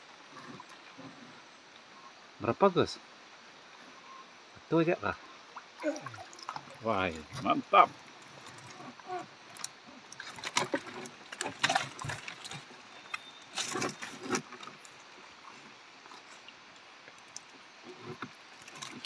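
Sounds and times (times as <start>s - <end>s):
fish thrashing against a boat: 5.8s - 16.4s
wet net rustling: 5.8s - 16.4s.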